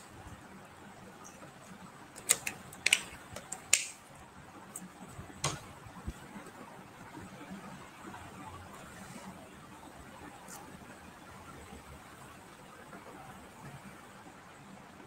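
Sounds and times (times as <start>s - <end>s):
faint room hiss: 0.0s - 15.0s
sharp clicks and crackles: 2.1s - 4.0s.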